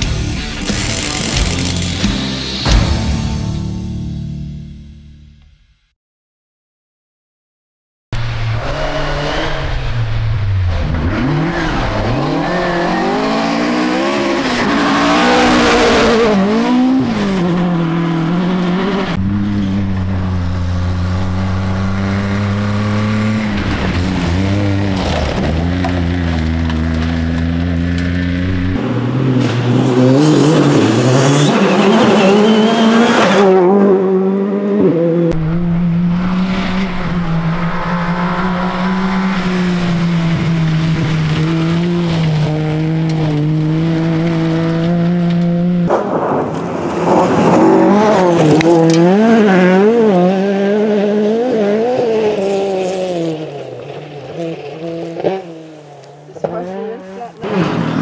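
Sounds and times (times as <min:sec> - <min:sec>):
rally car engines revving: 0:00.0 - 0:02.7, 0:08.2 - 0:58.0.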